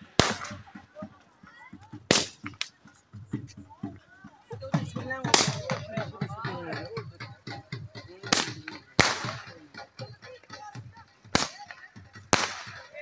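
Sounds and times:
firework bangs: 0.0 - 0.7, 2.1 - 2.6, 8.3 - 9.5, 12.3 - 12.9
crowd chatter: 0.0 - 13.0.

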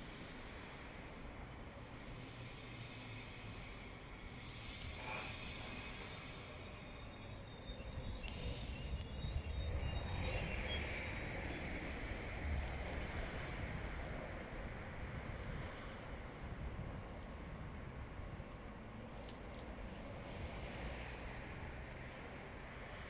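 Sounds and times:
faint high squeals: 0.0 - 16.1.

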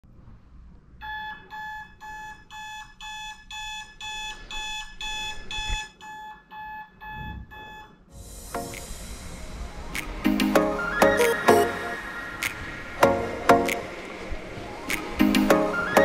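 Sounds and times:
electronic alarm beeping: 1.0 - 8.0.

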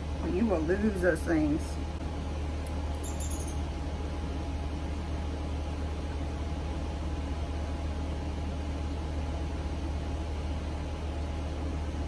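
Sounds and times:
electric desk fan humming: 0.0 - 12.0.

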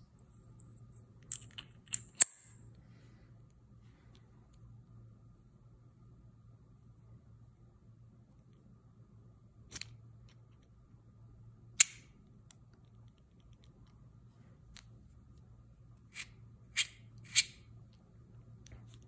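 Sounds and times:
metallic screwdriver clicks: 16.2 - 17.6.

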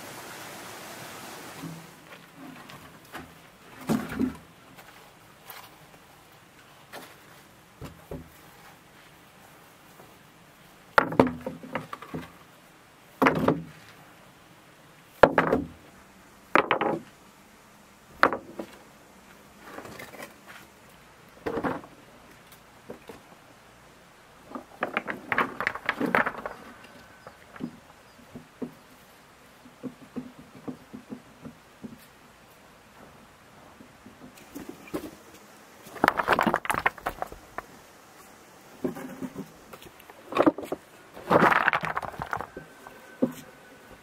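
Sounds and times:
stones knocking on wood: 11.0 - 12.4, 15.2 - 15.8, 16.5 - 17.1, 18.2 - 18.8, 24.5 - 28.8, 35.8 - 37.8, 38.8 - 43.4
clattering stones: 24.4 - 27.8, 35.8 - 37.9, 38.9 - 44.0
wooden barrow rattling: 24.5 - 27.8, 35.9 - 37.7, 40.2 - 43.4.

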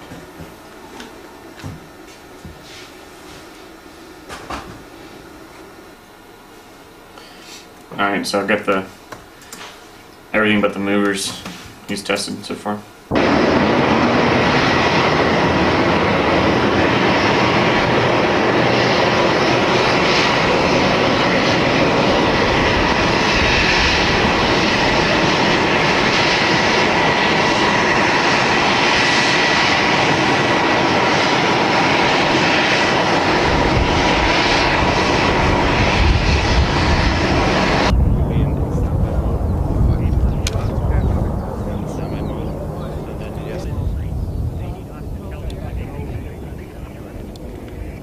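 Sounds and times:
deep engine rumble: 13.1 - 48.0
helicopters flying over: 13.1 - 48.0.

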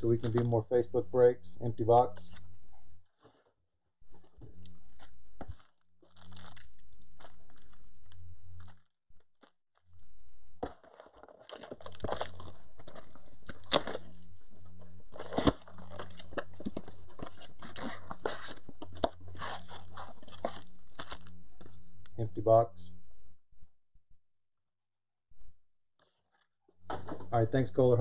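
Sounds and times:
cardboard and foil packs crinkling: 0.0 - 0.7, 4.1 - 10.0, 10.6 - 14.2, 15.1 - 21.7.

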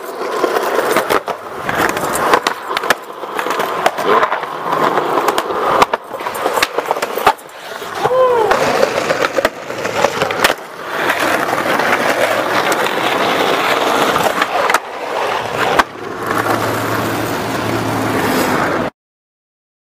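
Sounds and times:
skateboard clacking on ground: 0.0 - 18.9
skateboard wheels rolling on concrete: 0.0 - 18.9.

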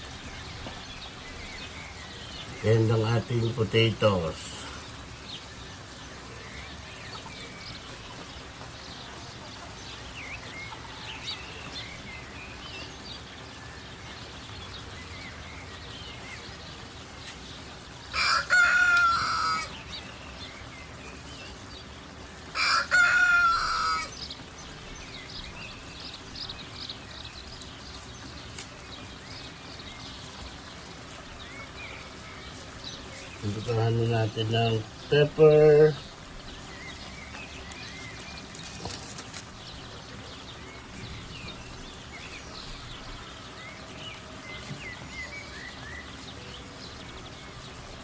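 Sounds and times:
rooster crowing: 18.1 - 19.8, 22.5 - 24.2.

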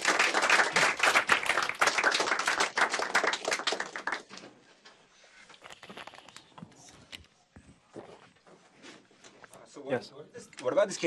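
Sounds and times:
audience applauding: 0.0 - 4.4.

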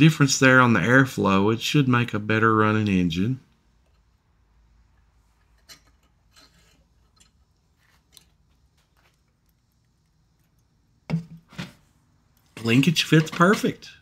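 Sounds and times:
small metal parts clicking and rubbing: 5.4 - 7.4.

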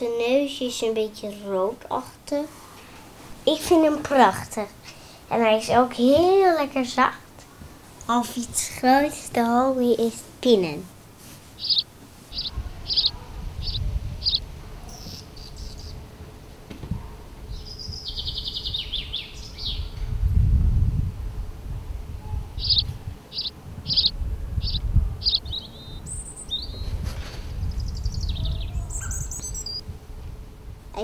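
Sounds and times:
buzzy bird trill: 11.6 - 16.1, 17.5 - 20.0, 22.6 - 27.0, 27.6 - 29.9
small songbirds singing: 11.6 - 16.1, 17.5 - 20.1, 22.4 - 27.0, 27.6 - 29.9
low rumble: 19.8 - 26.2.

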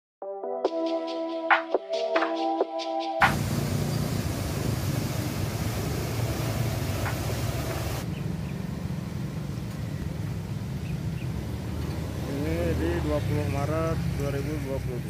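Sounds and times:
floodwater rushing: 3.2 - 8.0
river rumble: 3.2 - 9.4.

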